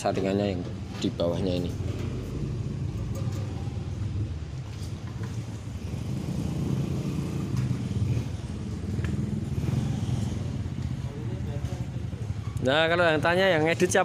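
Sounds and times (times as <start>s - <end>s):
small petrol engine droning: 1.8s - 12.6s.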